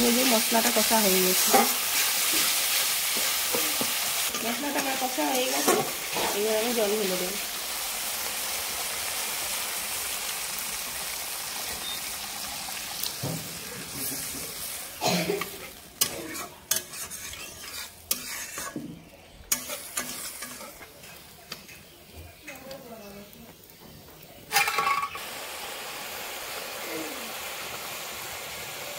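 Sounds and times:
sauce sizzling in a pan: 0.0s - 18.8s, 24.7s - 28.9s.

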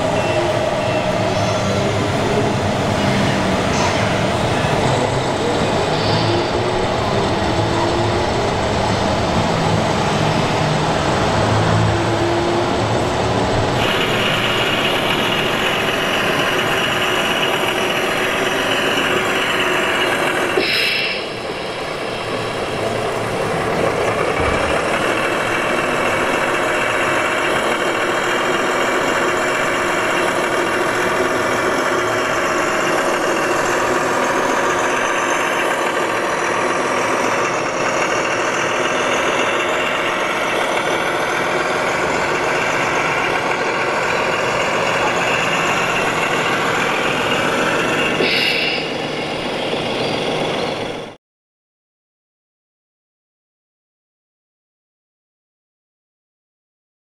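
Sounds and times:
model truck diesel engine sound: 0.0s - 51.2s
short hiss: 20.6s - 21.3s, 48.2s - 48.9s.

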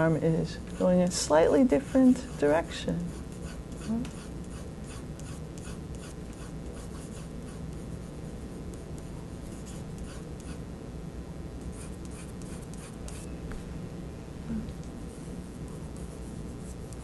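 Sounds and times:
pencil scratching on paper: 0.0s - 8.2s, 9.4s - 10.6s, 11.7s - 13.3s, 15.1s - 17.0s
steady low hum: 0.0s - 17.0s.

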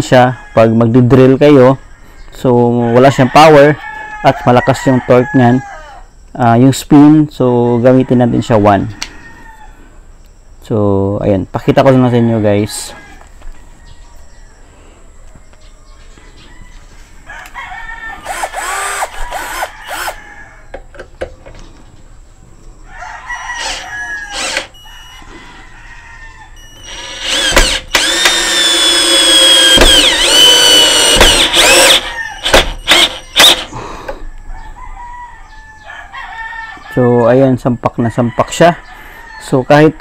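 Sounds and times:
cordless drill driving screw into wood: 18.2s - 20.2s, 23.6s - 24.7s, 26.8s - 33.7s
sharp clicks: 27.2s - 33.7s.

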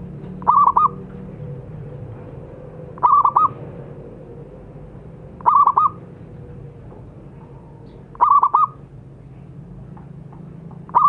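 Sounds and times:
dove cooing: 0.4s - 1.1s, 2.9s - 3.7s, 5.4s - 6.1s, 7.4s - 8.8s.

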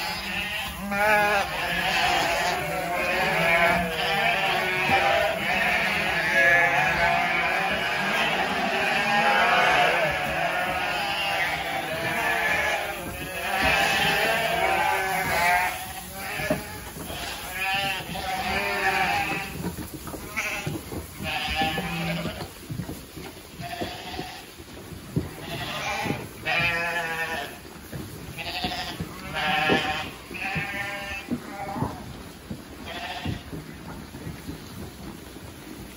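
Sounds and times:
sheep bleating: 0.0s - 19.6s, 20.3s - 22.5s, 25.4s - 27.6s, 28.4s - 32.0s, 32.8s - 33.5s.

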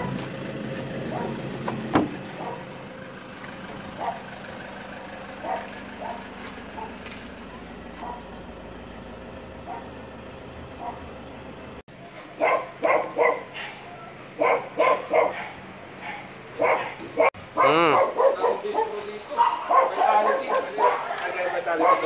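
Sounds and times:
dog barking loudly: 1.0s - 1.5s, 2.3s - 2.8s, 3.9s - 4.3s, 5.4s - 7.0s, 8.0s - 8.4s, 9.6s - 10.0s, 10.8s - 11.1s, 12.3s - 22.0s
puppies yelping: 1.0s - 1.5s, 2.3s - 2.9s, 5.3s - 8.4s, 12.4s - 22.0s.

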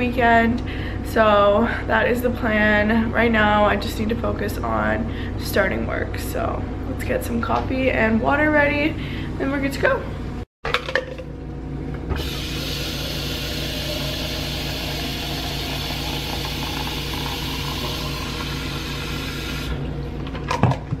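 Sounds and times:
faucet running into plastic cup: 12.2s - 19.8s.

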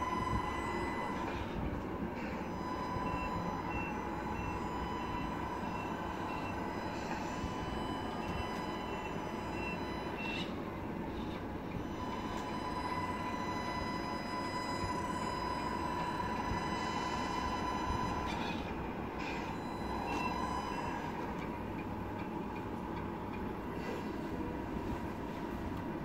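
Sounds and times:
reversing warning beeps: 0.0s - 22.6s
toy truck motor whine: 2.2s - 10.6s, 11.8s - 21.2s.

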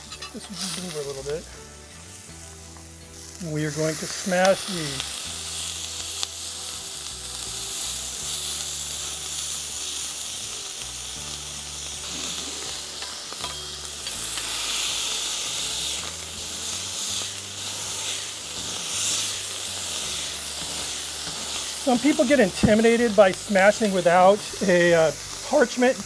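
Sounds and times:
meat sizzling on a griddle: 0.0s - 26.0s.

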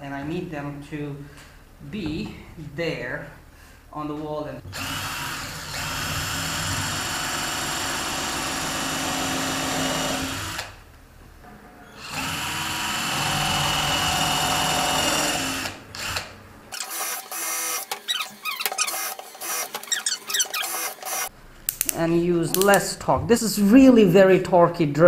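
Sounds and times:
cordless drill running: 4.7s - 10.8s, 12.0s - 21.3s
clicks and squeaks: 17.9s - 22.8s.

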